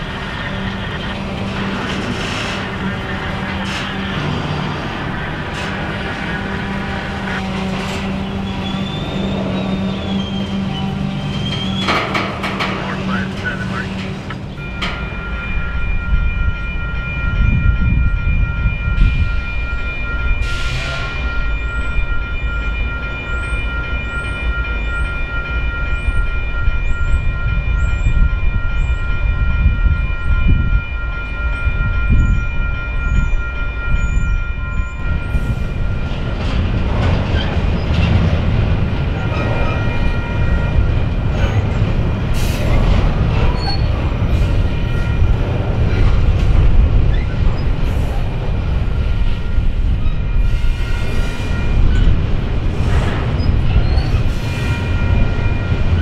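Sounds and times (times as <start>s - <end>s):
train cars clattering over rail joints: 0.0s - 15.6s, 35.4s - 56.0s
freight train rumbling: 0.0s - 56.0s
high-pitched ringing tone: 14.6s - 36.2s.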